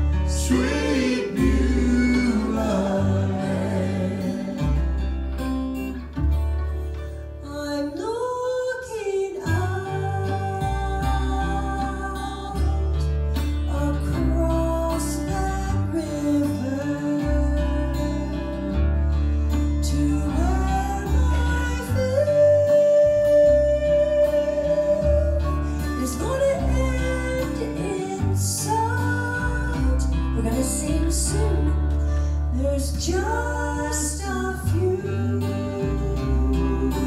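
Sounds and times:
woman singing lead: 0.0 - 5.1, 7.4 - 18.8, 19.7 - 37.0
harmony singing: 0.0 - 5.4, 19.9 - 37.0
upright bass: 0.0 - 8.2, 8.8 - 37.0
mandolin: 0.0 - 37.0
strummed acoustic guitar: 0.0 - 37.0.

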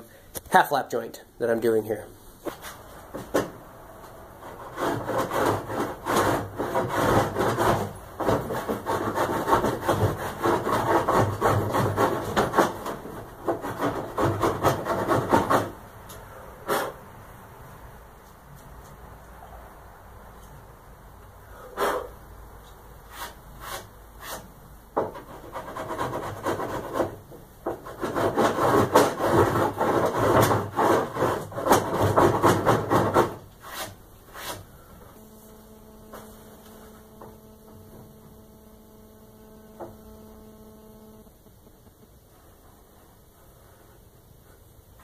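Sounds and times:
steady low hum: 0.0 - 45.0
plane scraping wood: 4.4 - 15.8, 23.1 - 34.6.

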